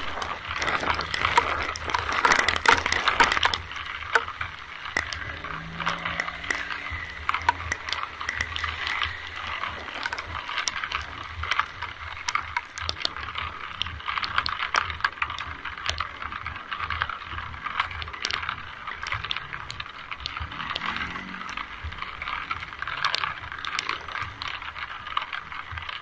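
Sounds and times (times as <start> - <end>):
low rumble: 0.0 - 12.3, 19.3 - 23.7
rain hiss with drop ticks: 0.0 - 26.0.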